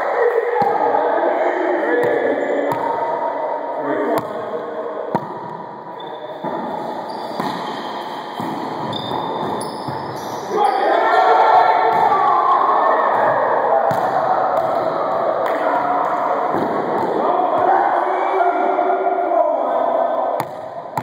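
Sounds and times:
players' voices: 0:00.0 - 0:21.0
sneakers squeaking on hardwood: 0:06.0 - 0:10.9.

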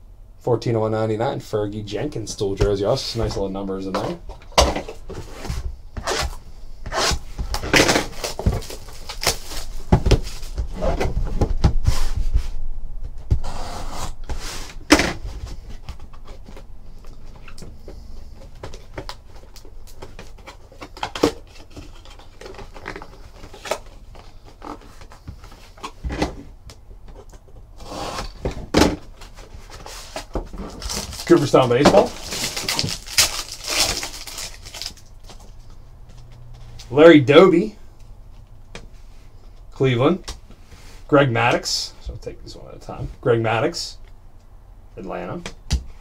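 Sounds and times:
hands opening cardboard box: 0:04.1 - 0:12.0, 0:27.1 - 0:35.5.

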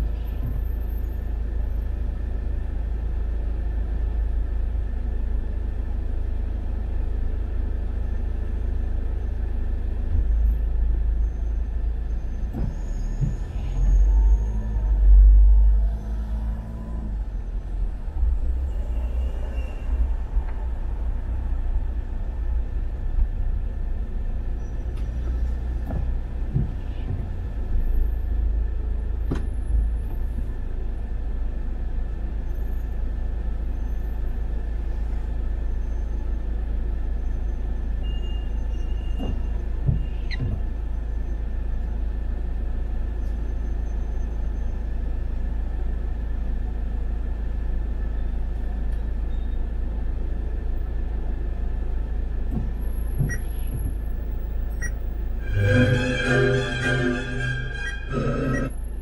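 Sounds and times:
car rumbling from inside: 0:00.0 - 0:59.0.

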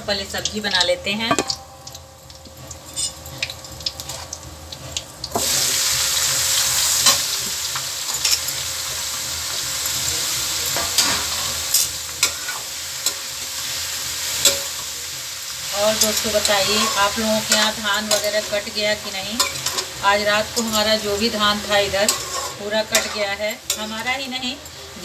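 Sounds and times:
hot oil sizzling in a pan: 0:00.0 - 0:25.0
metal spatula clinking on pan: 0:01.3 - 0:02.0.

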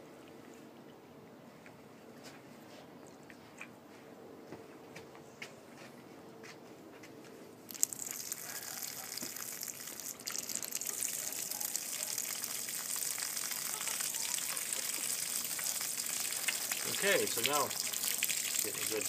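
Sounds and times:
water gushing from pipes: 0:07.7 - 0:19.0.

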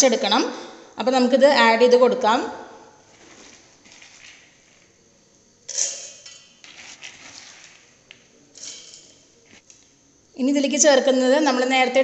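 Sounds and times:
grains rattling into steel jar: 0:03.2 - 0:04.5, 0:05.7 - 0:08.0.

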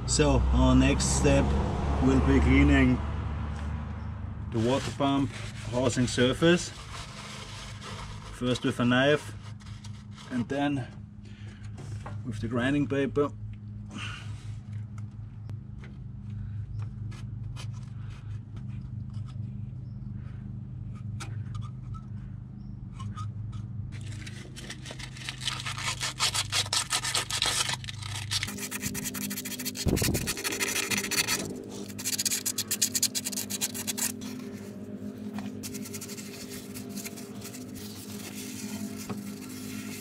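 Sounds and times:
low steady hum: 0:03.0 - 0:40.0
scraping gasket off metal: 0:24.0 - 0:40.0.

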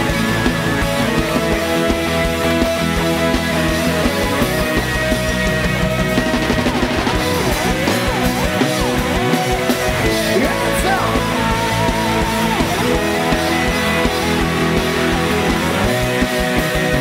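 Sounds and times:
drums: 0:00.0 - 0:17.0
electric guitar lead: 0:00.0 - 0:17.0.

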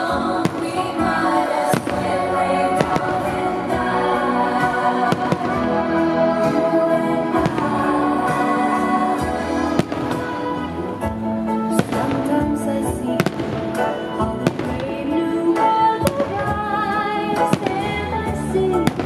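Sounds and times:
fireworks bangs: 0:00.0 - 0:03.8, 0:09.5 - 0:11.1, 0:11.7 - 0:12.5
festive music: 0:00.0 - 0:19.0.

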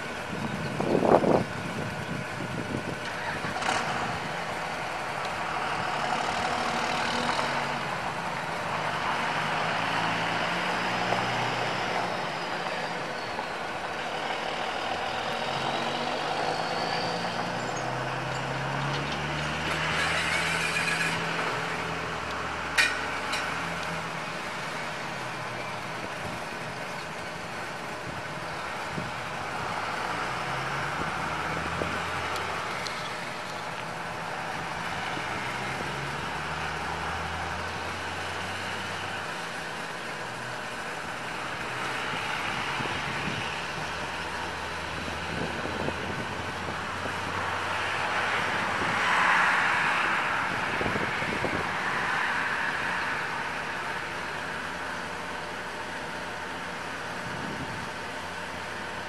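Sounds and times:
truck engine running: 0:00.0 - 0:47.7.

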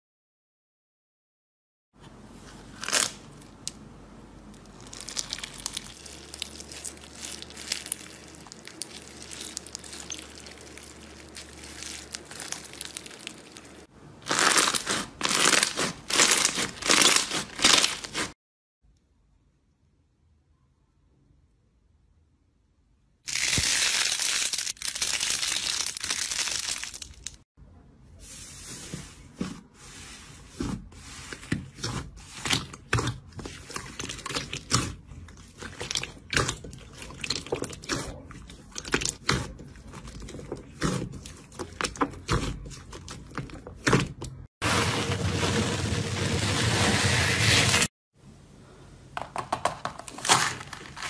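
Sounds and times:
slime squelching: 0:04.4 - 0:18.4, 0:28.6 - 0:44.5.

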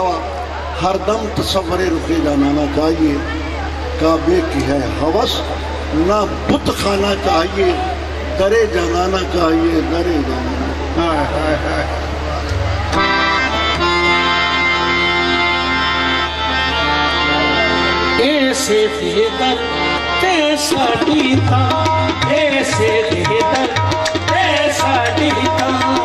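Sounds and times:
harmonium chord: 0:12.1 - 0:26.0
tabla strokes: 0:21.0 - 0:26.0.

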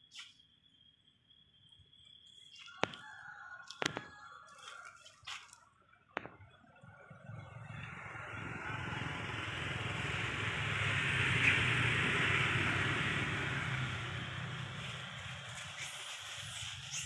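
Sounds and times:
motor vehicle passing by: 0:06.8 - 0:17.0.

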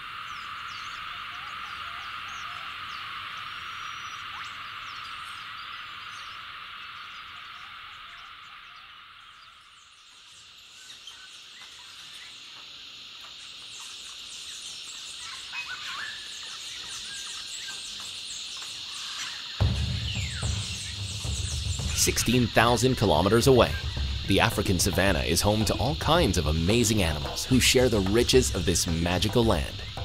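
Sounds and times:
frog chorus trilling: 0:00.0 - 0:30.0
bird chirps and whistles: 0:15.2 - 0:17.8, 0:18.6 - 0:22.0.

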